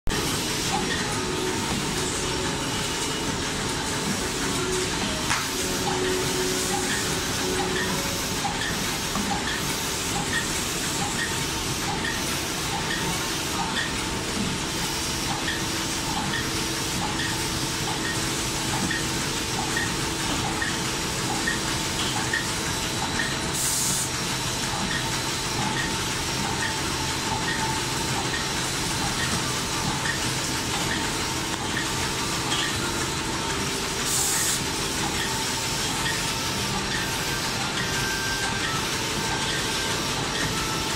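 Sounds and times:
packing machine running: 0.1 - 40.9
light regular machine tick: 7.6 - 14.4, 15.2 - 23.4.

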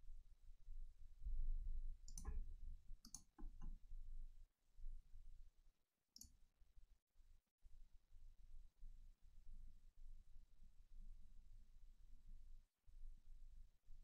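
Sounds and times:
faint computer mouse clicks: 2.1 - 2.4, 3.0 - 3.8.

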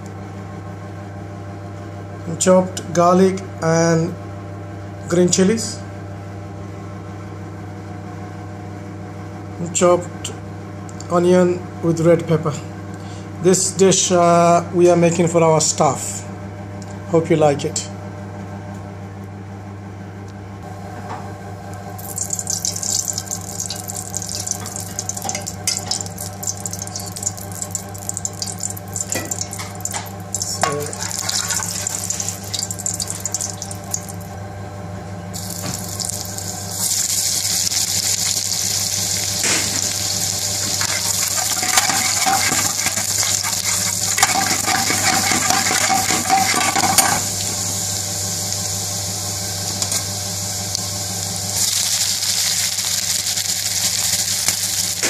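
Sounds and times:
oil sizzling in a wok: 22.0 - 34.3, 35.4 - 55.0.

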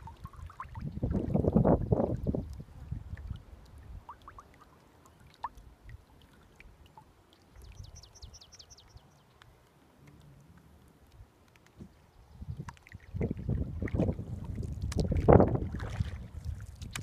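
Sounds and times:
water dripping and trickling: 0.0 - 17.0
small clicks: 9.3 - 11.9.

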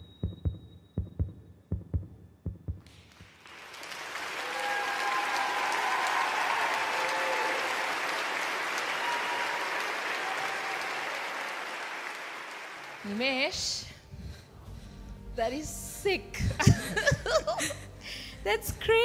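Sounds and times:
heartbeat sound effect: 0.0 - 2.9, 16.4 - 17.5
audience applause and cheering: 2.9 - 13.5.

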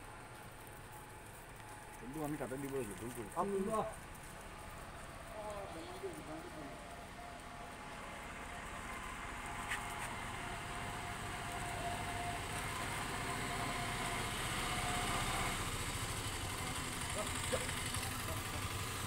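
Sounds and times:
vehicle engine passing: 7.8 - 19.0.

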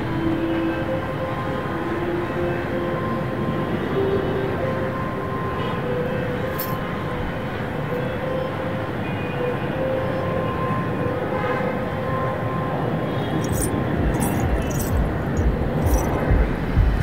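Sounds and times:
distant traffic rumble: 13.4 - 17.0.

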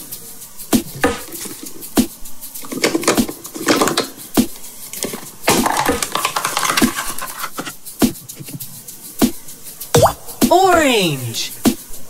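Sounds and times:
plastic halves scraping: 5.0 - 7.7.

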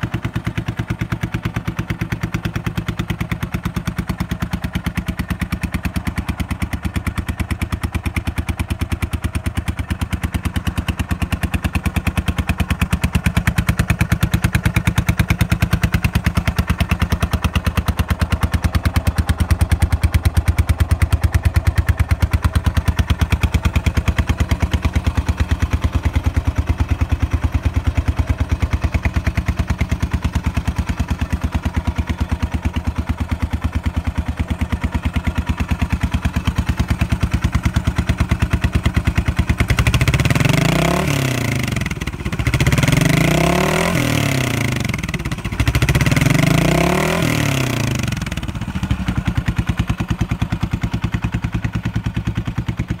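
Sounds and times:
motorcycle engine idling: 0.0 - 53.0
motorcycle engine revving: 0.0 - 53.0.

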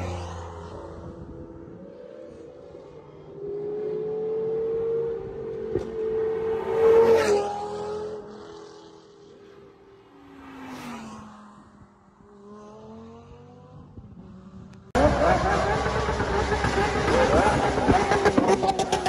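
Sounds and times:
sports cars driving past: 0.0 - 19.0
engine note rising: 15.0 - 19.0.

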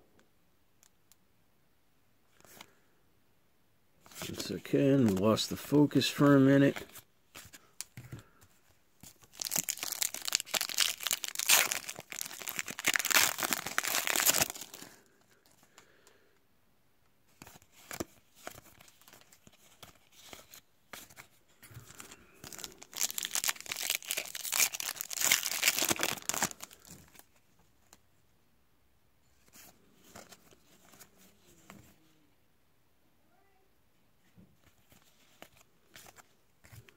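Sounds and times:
cards being handled: 4.0 - 15.7, 17.3 - 28.0, 29.4 - 32.0
foil wrappers tearing and crinkling: 9.1 - 14.9, 22.4 - 27.0.

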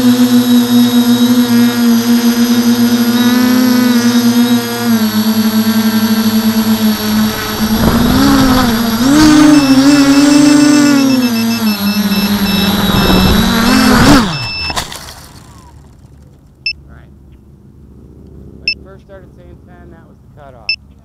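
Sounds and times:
drone propellers buzzing: 0.0 - 17.3
high rapid beeping: 5.8 - 14.8.

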